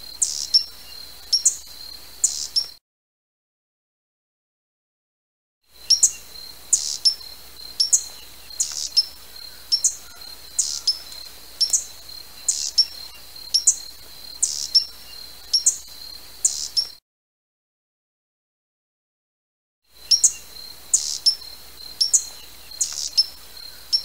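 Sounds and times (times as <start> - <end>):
hummingbird chip calls: 0.0 - 2.7, 5.8 - 16.9, 20.0 - 24.0.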